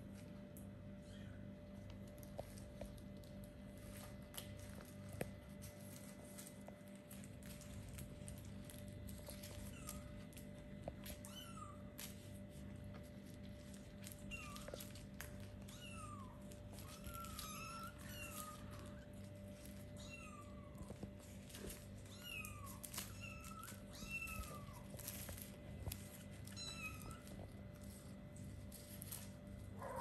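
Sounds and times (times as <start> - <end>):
faint clicks and rustles: 0.0 - 30.0.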